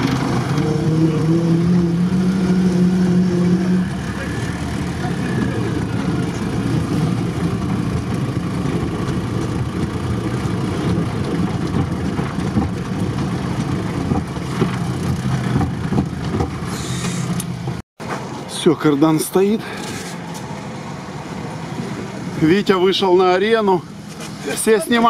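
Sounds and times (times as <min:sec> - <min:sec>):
engine running inside cab: 0:00.0 - 0:18.6.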